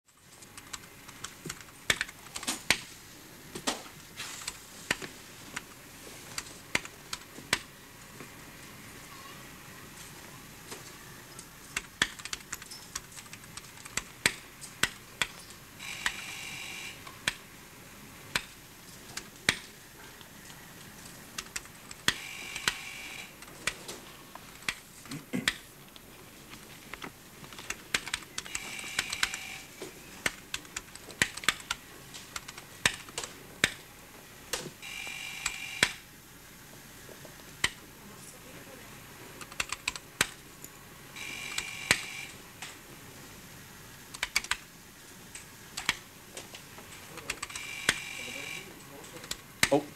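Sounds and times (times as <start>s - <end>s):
sharp clicks and ticks: 0.4s - 2.9s, 11.7s - 16.3s, 18.3s - 18.6s, 21.4s - 23.8s, 24.5s - 24.8s, 26.9s - 33.8s, 37.6s - 37.8s, 39.4s - 40.4s, 44.1s - 44.6s, 45.3s - 46.0s, 47.2s - 48.2s
electronic buzzer tone: 15.8s - 17.2s, 22.1s - 23.4s, 28.5s - 29.7s, 34.8s - 36.0s, 41.2s - 42.4s, 47.5s - 48.7s.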